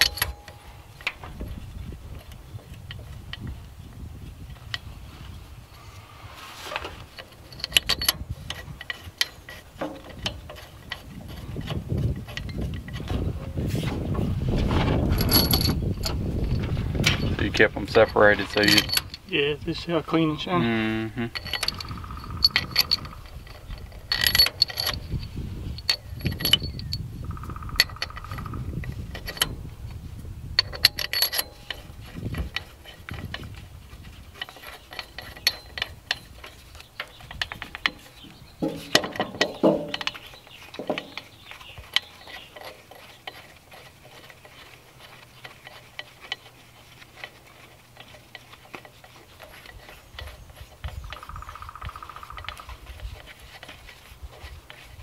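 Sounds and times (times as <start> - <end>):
metal parts clinking: 0.0 - 3.5, 6.7 - 13.6, 14.8 - 55.0.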